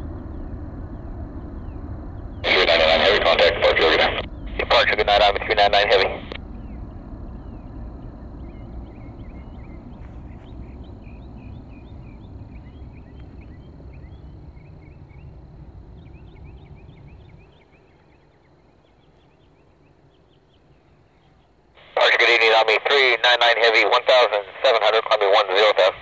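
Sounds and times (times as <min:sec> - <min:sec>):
small birds chirping: 0:00.0 - 0:22.0
jet engines rumbling: 0:00.0 - 0:26.0.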